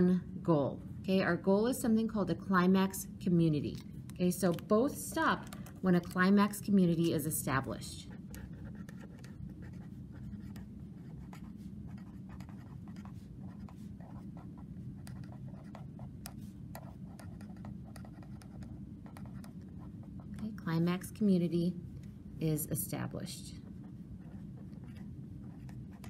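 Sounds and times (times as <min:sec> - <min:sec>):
faint low hum: 0:00.0 - 0:26.0
pen writing on paper: 0:08.2 - 0:20.3, 0:24.2 - 0:26.0.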